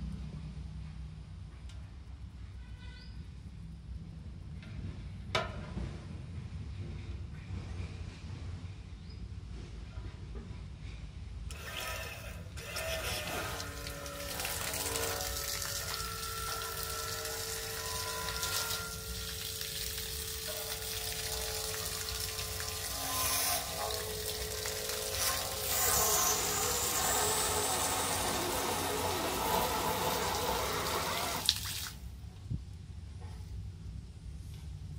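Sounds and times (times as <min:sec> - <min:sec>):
water pump jet splashing: 0:11.5 - 0:32.1
faint motor whine: 0:11.5 - 0:32.6.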